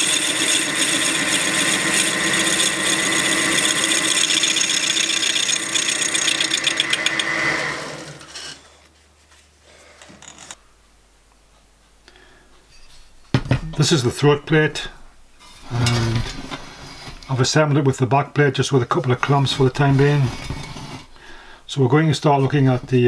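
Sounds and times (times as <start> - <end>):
metal lathe cutting with high whine: 0.0 - 8.6
faint handling sounds: 8.6 - 13.4.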